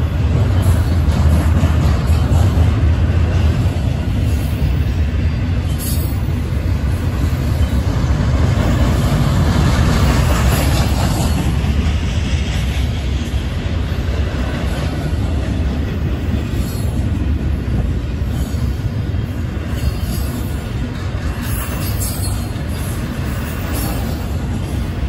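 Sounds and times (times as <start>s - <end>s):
freight train wheels rumbling: 0.0s - 25.0s.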